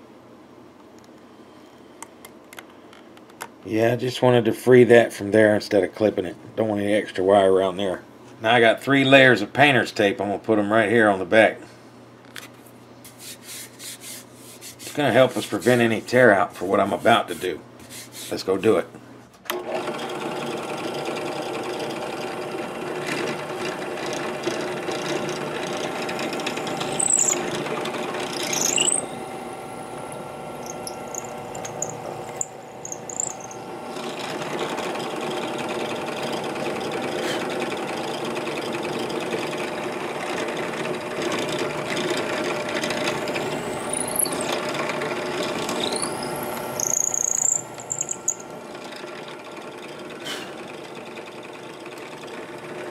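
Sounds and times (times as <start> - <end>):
electric drill boring into wood: 19.5 - 52.9.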